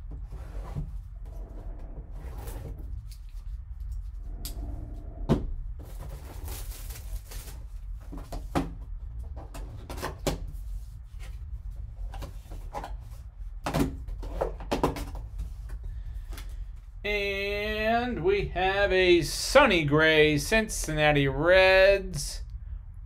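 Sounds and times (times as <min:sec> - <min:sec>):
steady low hum: 0:00.0 - 0:23.0
plastic wrap rustling: 0:05.9 - 0:08.0.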